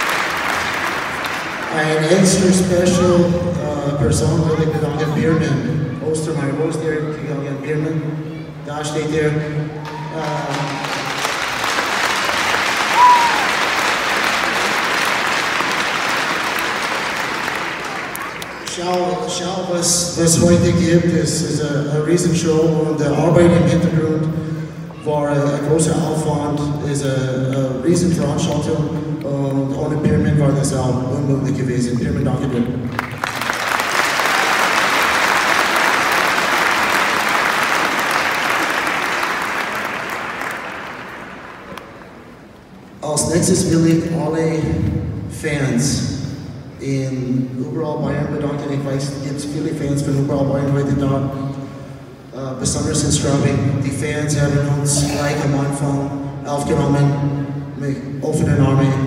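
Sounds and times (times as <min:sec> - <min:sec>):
indoor crowd applauding: 0:00.0 - 0:03.2, 0:09.8 - 0:19.2, 0:32.8 - 0:42.5.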